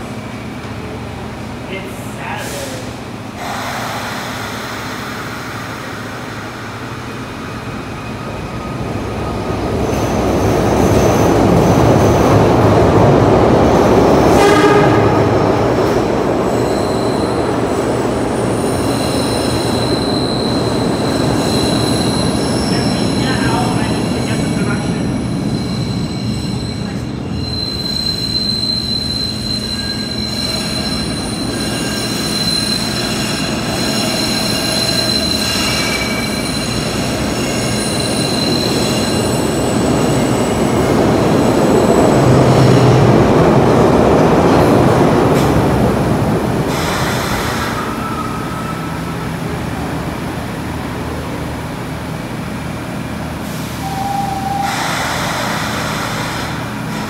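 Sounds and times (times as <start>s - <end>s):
subway train rumbling: 0.0s - 57.0s
train wheel squeal: 15.8s - 42.9s, 46.7s - 49.5s, 53.5s - 57.0s.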